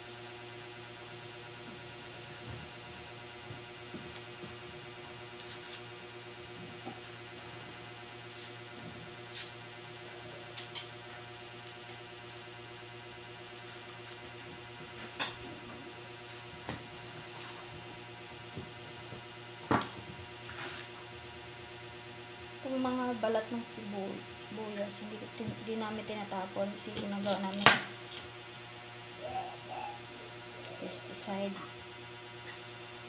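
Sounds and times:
steady hum: 0:00.0 - 0:33.0.

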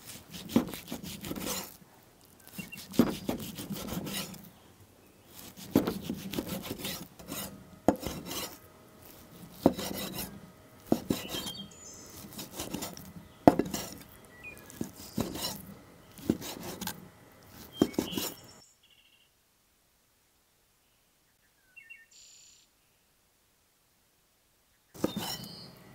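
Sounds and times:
knife cutting on wooden board: 0:00.0 - 0:01.8, 0:02.5 - 0:04.5, 0:05.4 - 0:18.4, 0:25.0 - 0:25.6
faint bird chirps: 0:02.3 - 0:03.0, 0:11.2 - 0:12.2, 0:14.1 - 0:15.2, 0:17.7 - 0:19.4, 0:20.8 - 0:23.2, 0:24.6 - 0:25.8.

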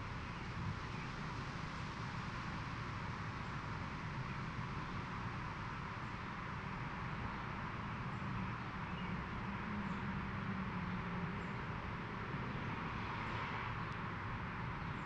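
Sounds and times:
constant hiss: 0:00.0 - 0:12.9.

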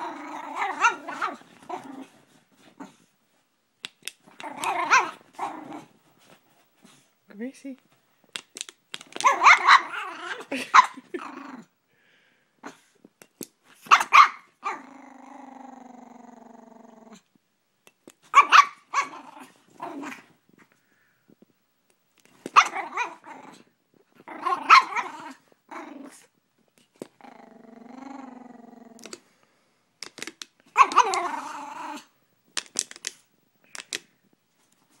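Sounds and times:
dog growling: 0:00.0 - 0:02.2, 0:04.3 - 0:05.9, 0:09.3 - 0:11.7, 0:14.6 - 0:17.3, 0:22.7 - 0:26.3, 0:27.2 - 0:29.2, 0:30.8 - 0:32.1
small dog barking: 0:00.6 - 0:01.4, 0:04.6 - 0:05.2, 0:09.2 - 0:10.0, 0:13.8 - 0:14.8, 0:18.3 - 0:19.2, 0:22.5 - 0:23.2, 0:24.5 - 0:25.1.

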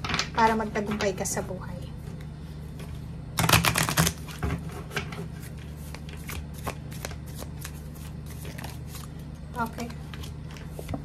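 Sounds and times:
cards being shuffled: 0:05.3 - 0:11.0.

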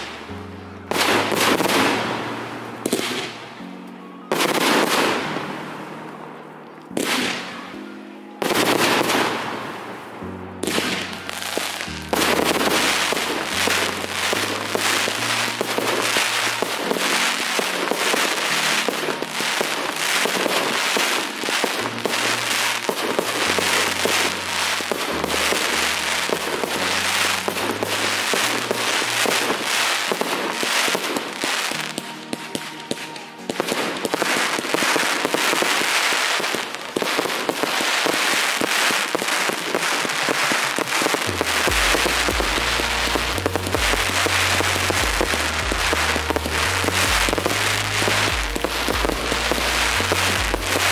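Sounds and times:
fireworks crackling and popping: 0:00.0 - 0:50.9
music with stepping bass line: 0:41.3 - 0:50.9.

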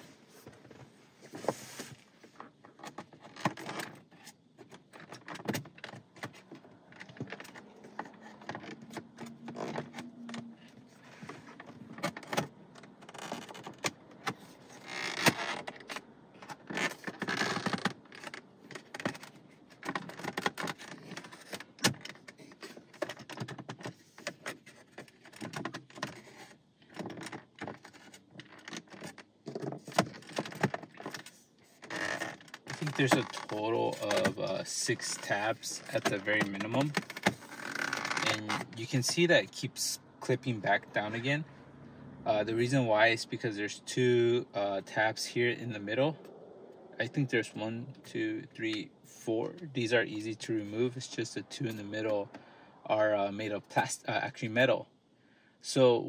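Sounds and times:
plastic scraping on plastic: 0:00.0 - 0:39.2.

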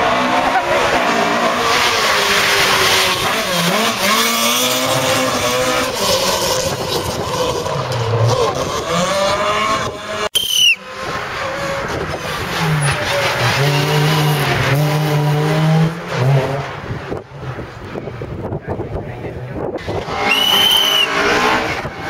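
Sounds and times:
rally car engine revving: 0:00.0 - 0:22.0
tyre squeal: 0:20.2 - 0:21.3.

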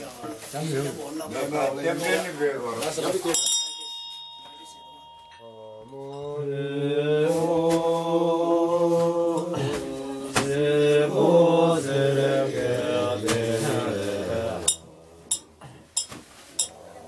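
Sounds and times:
men chanting in unison: 0:05.8 - 0:15.4.

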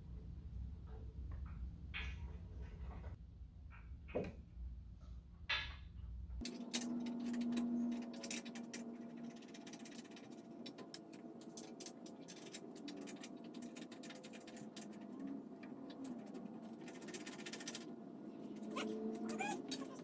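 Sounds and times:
low steady shop hum: 0:00.0 - 0:20.0
wrench clicking and scraping on bolts: 0:06.4 - 0:17.9.

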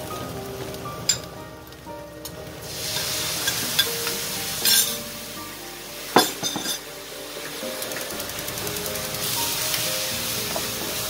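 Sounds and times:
sauce sizzling in a wok: 0:02.4 - 0:11.0.

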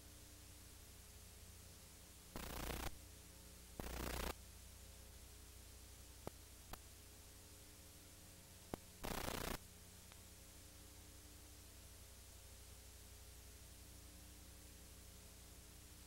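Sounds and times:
videotape hum and hiss: 0:00.0 - 0:16.0
bursts of static: 0:02.3 - 0:03.0, 0:03.8 - 0:04.4, 0:08.7 - 0:09.6.

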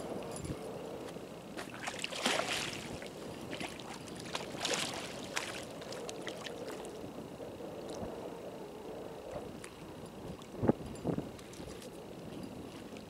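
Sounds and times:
fish thrashing and splashing: 0:01.6 - 0:06.9.

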